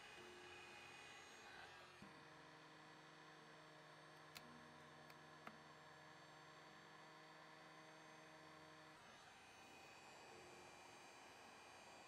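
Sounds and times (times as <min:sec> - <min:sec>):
faint small clicks: 0:04.2 - 0:05.6.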